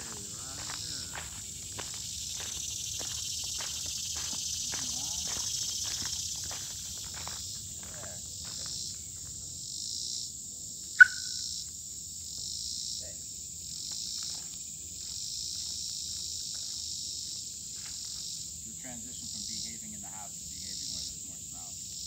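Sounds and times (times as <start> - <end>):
high-pitched insect chorus: 0.0 - 22.0
short sharp chirp: 11.0 - 11.4.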